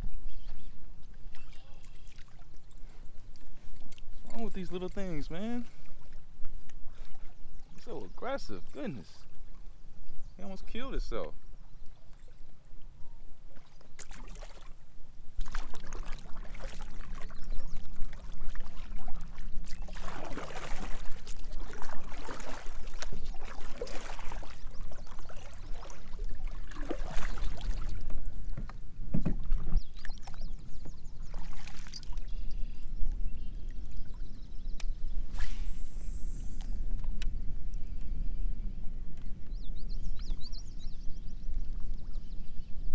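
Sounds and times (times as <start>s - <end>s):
paddle splashes and drips: 0.4s - 3.9s, 5.7s - 10.2s, 11.8s - 34.9s.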